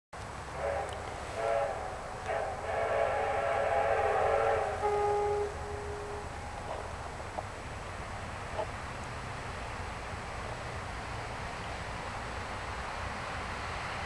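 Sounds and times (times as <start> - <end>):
steam locomotive whistle: 0.5 - 6.9.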